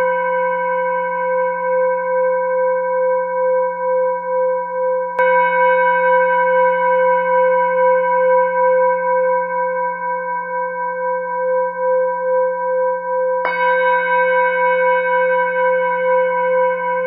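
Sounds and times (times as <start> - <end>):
singing bowl tones: 0.0 - 17.0.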